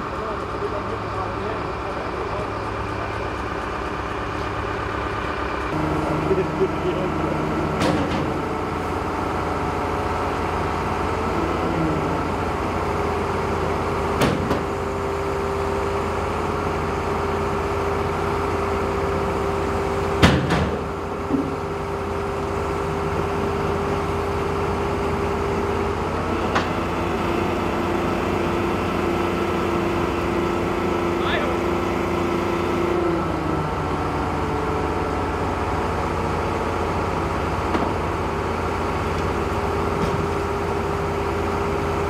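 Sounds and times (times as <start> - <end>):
diesel engine running: 0.0 - 42.0
whine: 4.0 - 9.4.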